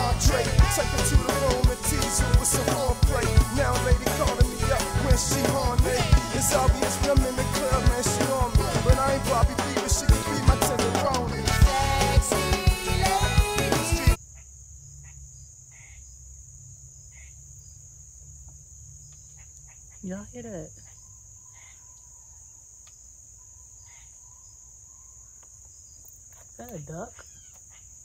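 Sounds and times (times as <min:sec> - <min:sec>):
crickets chirring: 0:00.0 - 0:10.1, 0:14.2 - 0:28.0
background music: 0:00.0 - 0:14.2.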